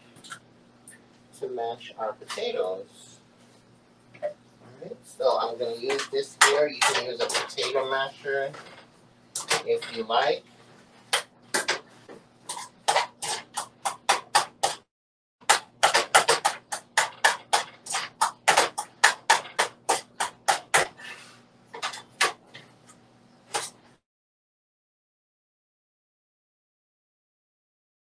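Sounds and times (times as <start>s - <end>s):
utensil clacking against metal pot: 5.9s - 8.0s, 12.5s - 14.8s, 15.5s - 21.0s, 21.8s - 22.4s.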